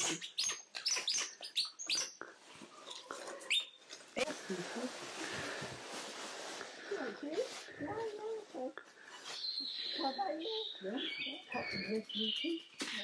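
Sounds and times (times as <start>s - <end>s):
monkeys chirping: 0.0s - 3.8s.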